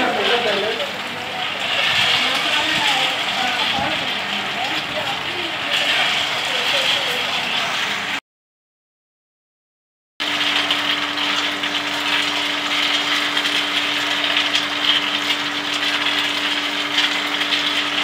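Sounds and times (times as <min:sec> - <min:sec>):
nuts rattling in metal drum: 0:00.0 - 0:07.6, 0:10.2 - 0:18.0
machine motor hum: 0:10.2 - 0:18.0.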